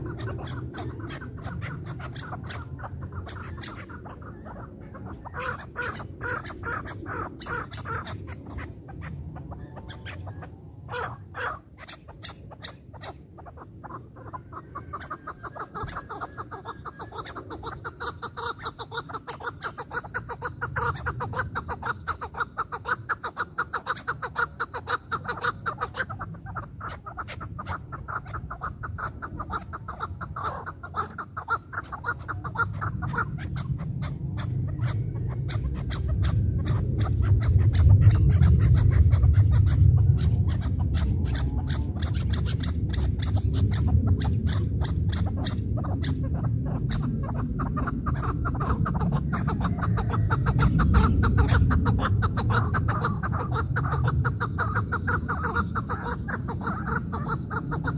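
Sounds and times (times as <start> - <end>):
low rumble: 33.3 - 54.5.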